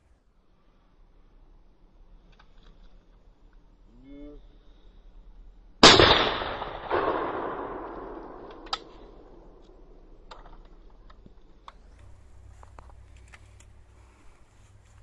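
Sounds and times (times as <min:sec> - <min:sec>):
shotgun shots with echo: 0:05.8 - 0:09.9.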